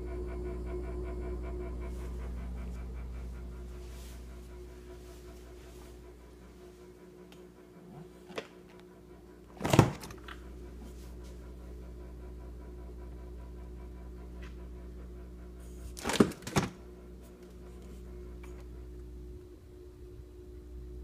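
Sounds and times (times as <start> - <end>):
refrigerator humming: 0.0 - 21.0
refrigerator thunk: 9.6 - 10.2.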